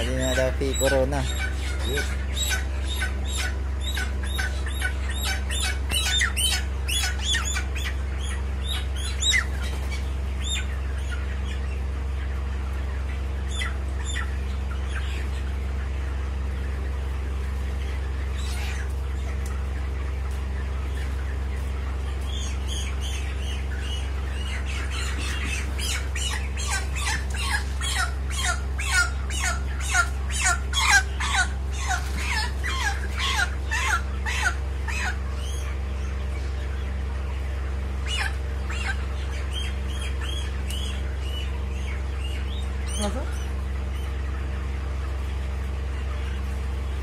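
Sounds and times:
chicken distress squawks: 0:00.0 - 0:11.2, 0:18.2 - 0:19.1, 0:22.2 - 0:35.9.

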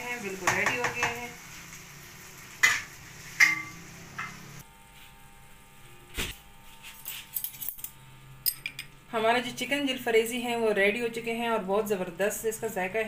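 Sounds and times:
utensil clinking on wok: 0:02.6 - 0:04.4.

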